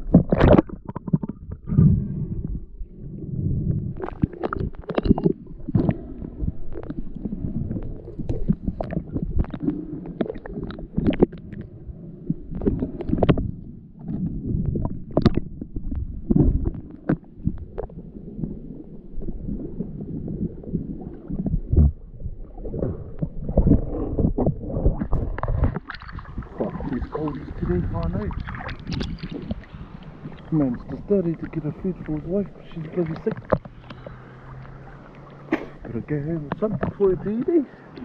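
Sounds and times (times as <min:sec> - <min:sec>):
low rumbling water noise: 0:00.0 - 0:38.0
water splashing at surface: 0:22.6 - 0:38.0
muffled underwater knife scraping: 0:22.7 - 0:38.0.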